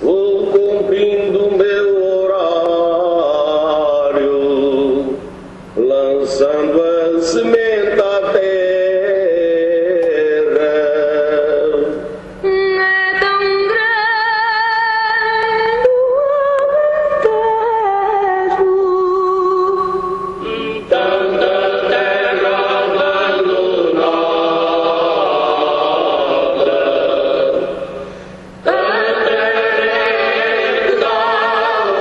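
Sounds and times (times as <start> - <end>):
unaccompanied group singing: 20.4 - 28.0, 28.6 - 32.0.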